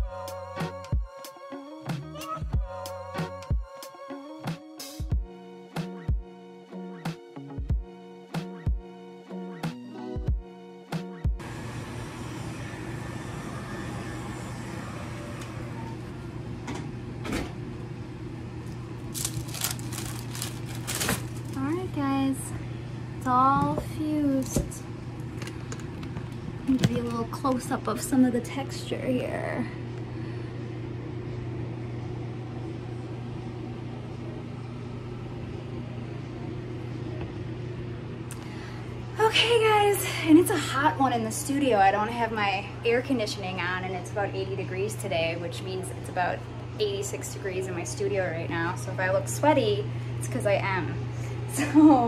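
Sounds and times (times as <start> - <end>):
low hum: 11.4 - 52.0.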